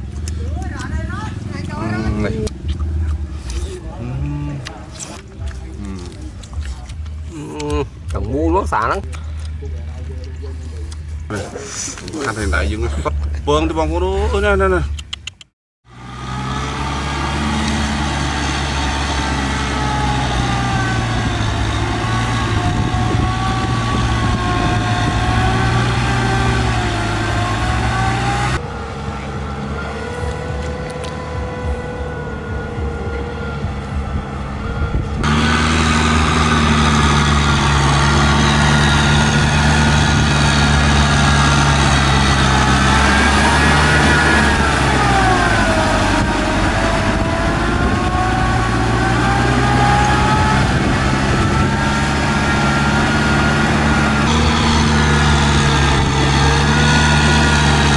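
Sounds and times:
tractor engine droning: 0.0s - 57.9s
faint engine whine: 15.9s - 57.9s.

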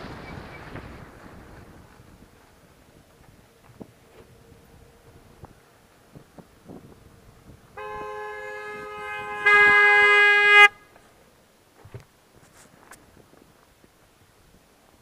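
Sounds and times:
car horn: 7.7s - 11.0s.

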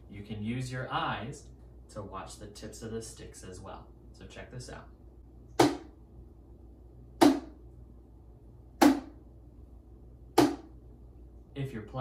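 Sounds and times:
snare drum hits: 5.6s - 5.9s, 7.2s - 7.6s, 8.8s - 9.2s, 10.4s - 10.7s.

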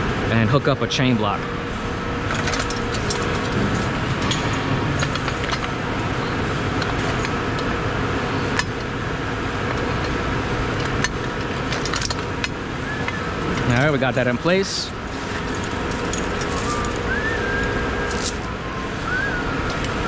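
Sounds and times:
machinery hum: 0.0s - 20.0s
metallic chain clinks: 14.7s - 17.1s, 17.9s - 18.5s.

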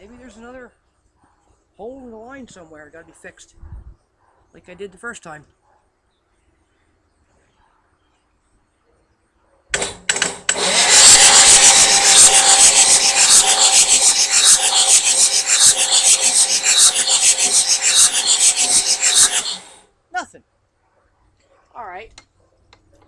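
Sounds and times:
starter cranking diesel engine: 9.8s - 19.7s.

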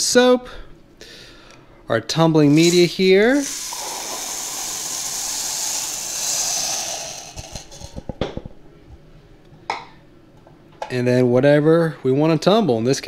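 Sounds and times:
metal media pouring into water: 2.5s - 8.0s.

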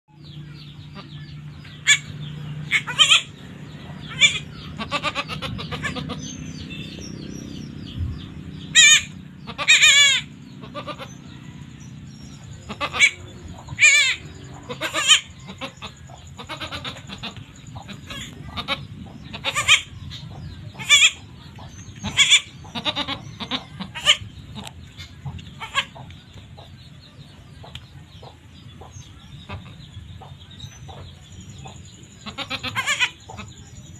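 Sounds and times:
goats bleating: 4.1s - 6.3s, 8.8s - 11.2s, 12.7s - 19.9s, 22.0s - 24.7s, 32.2s - 33.5s.

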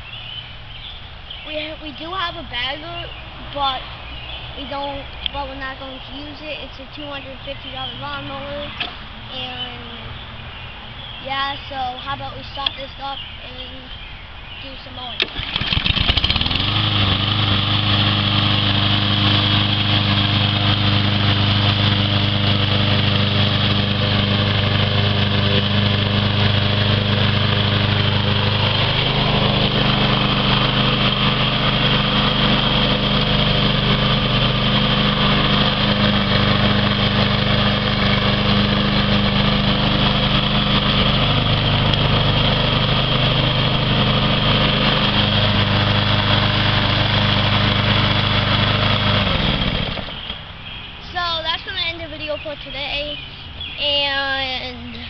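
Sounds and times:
lawn mower engine running: 0.1s - 55.0s
lawn mower pull-start: 8.0s - 9.2s, 15.1s - 52.6s.

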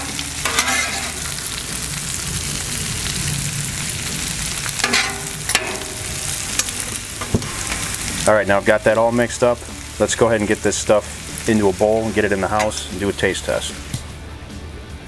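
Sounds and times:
metal spatula scraping griddle: 0.0s - 1.6s, 4.8s - 8.2s
food sizzling on a griddle: 0.0s - 14.2s.

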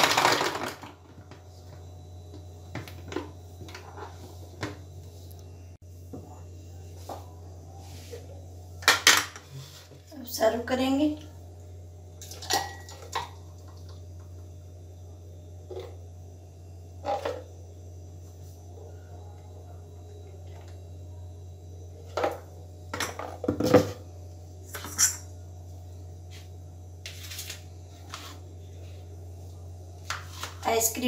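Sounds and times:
low steady hum: 0.0s - 31.0s
glass clinking on stone countertop: 12.2s - 13.2s.

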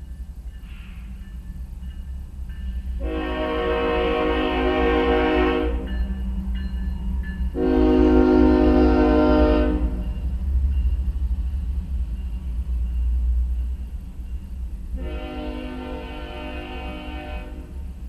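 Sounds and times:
freight train rumbling: 0.0s - 18.0s
locomotive air horn: 3.0s - 5.9s, 7.6s - 10.0s, 15.0s - 17.9s.

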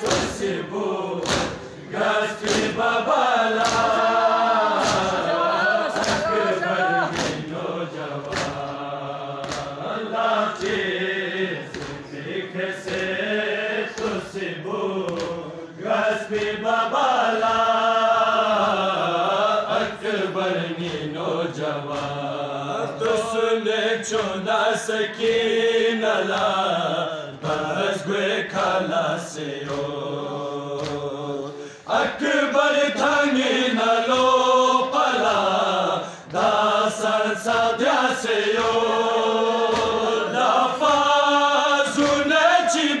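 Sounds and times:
chest-beating slaps: 0.0s - 0.6s, 1.2s - 1.8s, 2.4s - 4.1s, 4.7s - 5.3s, 5.9s - 9.9s, 10.5s - 10.9s, 11.7s - 13.2s, 13.9s - 14.4s, 15.0s - 15.5s, 21.9s - 22.3s, 29.6s - 30.0s, 30.7s - 31.6s, 39.6s - 41.2s
men chanting a lament: 0.0s - 43.0s.

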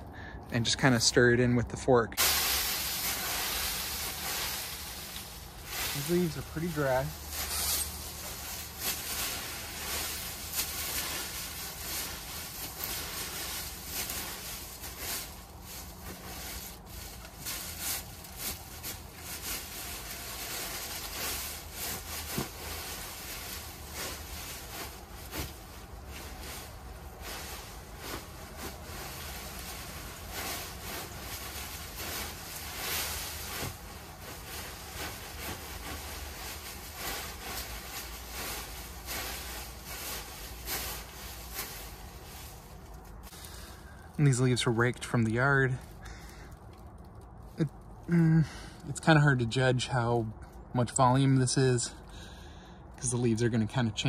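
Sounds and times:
garden fork digging into leaves: 2.2s - 43.6s
dry leaves rustling: 2.2s - 48.9s.

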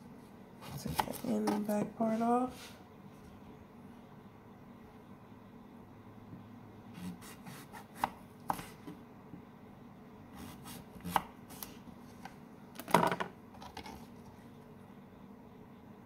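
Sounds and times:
knife cutting on wooden board: 7.0s - 8.9s, 10.4s - 11.8s.

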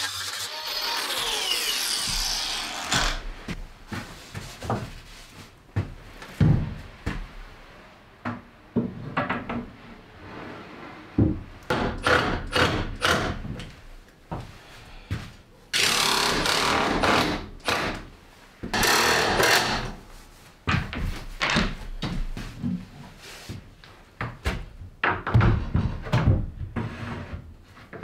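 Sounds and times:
power tool running down: 0.1s - 3.2s.

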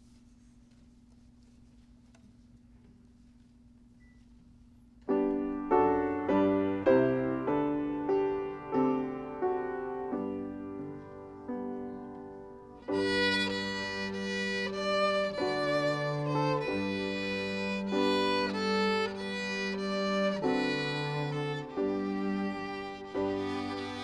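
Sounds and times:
grand piano notes: 5.0s - 24.0s
violin and cello melody: 12.8s - 24.0s.

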